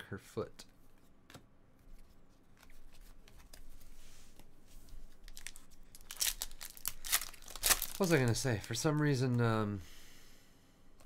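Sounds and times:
foil wrapper crackling and crinkling: 5.3 - 8.9.

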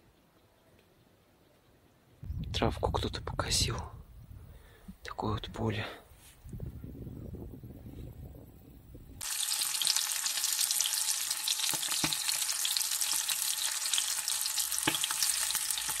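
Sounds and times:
fish frying in hot oil: 9.2 - 16.0.

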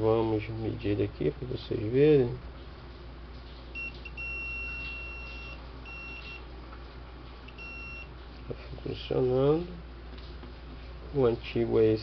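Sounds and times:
multimeter continuity beeps: 3.8 - 6.5, 7.5 - 8.1.

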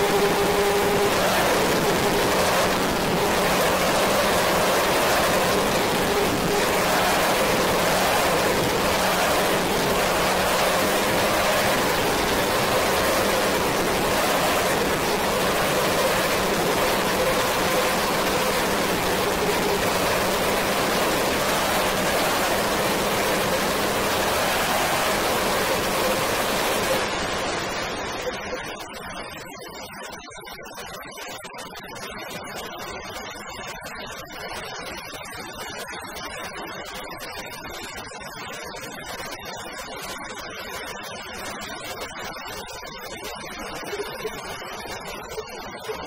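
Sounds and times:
rushing rain-like noise: 0.0 - 29.8.

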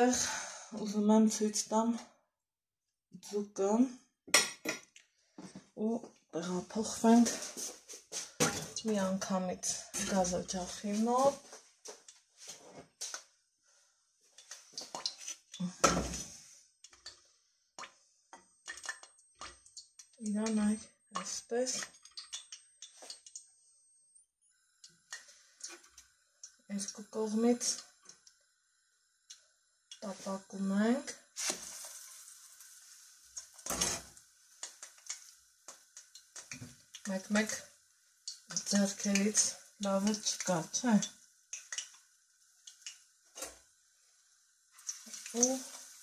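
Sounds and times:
fish sizzling in hot oil: 24.5 - 46.0.

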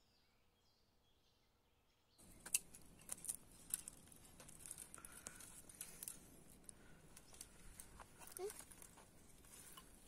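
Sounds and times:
dry twigs crackling: 2.2 - 10.0.

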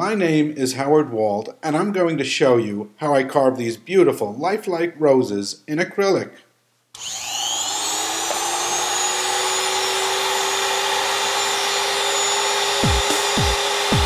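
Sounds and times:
electric grinder high whine: 7.0 - 14.0
background music thuds: 12.8 - 14.0.

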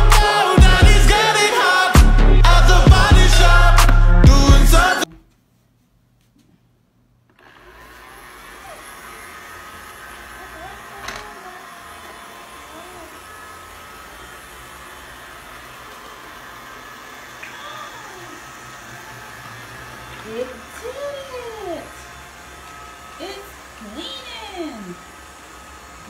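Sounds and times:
robot vacuum running: 7.4 - 26.0
robot vacuum bumping furniture: 10.9 - 11.4.

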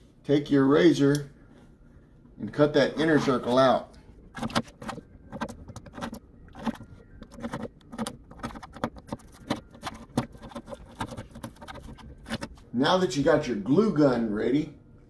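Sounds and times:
knife cutting cardboard: 4.4 - 12.6.

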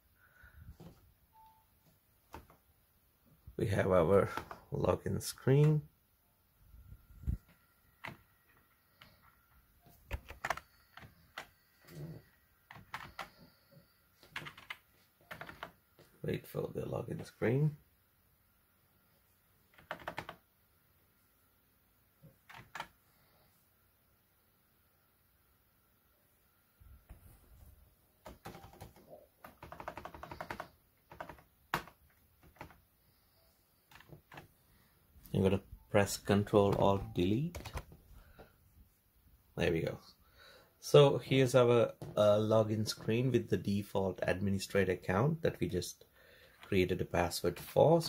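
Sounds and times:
keyboard keys clicking: 10.1 - 11.5, 12.7 - 13.3, 14.2 - 15.8, 19.8 - 20.4, 28.2 - 32.8.

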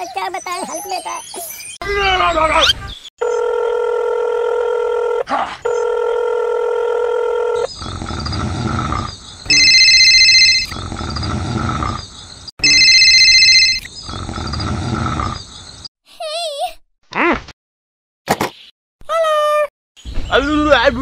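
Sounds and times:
phone ringing: 3.2 - 7.6, 9.5 - 10.8, 12.6 - 13.9
rough growling sound: 7.6 - 9.6, 10.6 - 12.5, 13.9 - 15.8.

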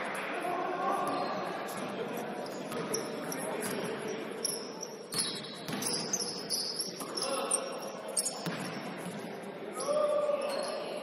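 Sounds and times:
sneaker squeaks on floor: 2.4 - 11.0
basketball bouncing on court: 5.1 - 6.3, 8.3 - 9.1.

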